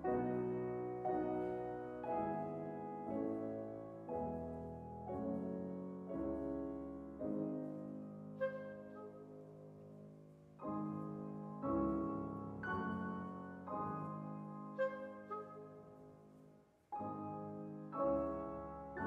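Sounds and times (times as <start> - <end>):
pianos playing soft chords: 0.0 - 19.0
clarinet cuckoo call: 8.4 - 9.3, 14.7 - 15.8.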